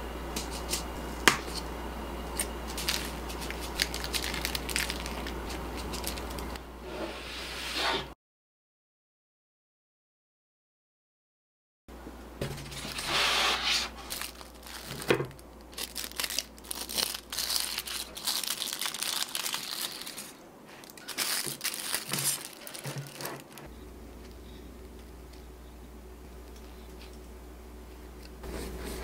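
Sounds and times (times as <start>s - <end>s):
aluminium foil crinkling: 2.3s - 6.6s, 14.1s - 23.7s.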